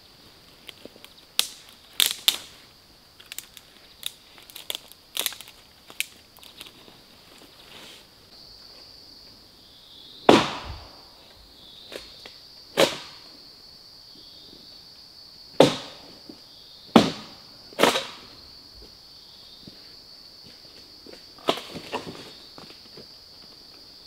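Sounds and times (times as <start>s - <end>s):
high insect drone: 0.0s - 24.0s
dry sticks snapping: 0.6s - 2.5s, 3.2s - 6.8s.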